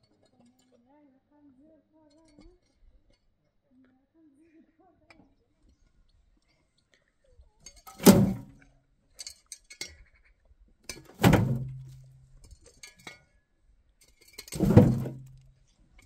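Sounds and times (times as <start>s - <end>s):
metal tray ringing: 7.9s - 8.5s
dirt thudding into metal wheelbarrow: 7.9s - 8.6s, 10.9s - 12.2s, 14.5s - 15.4s
shovel scraping and clinking: 14.1s - 15.4s.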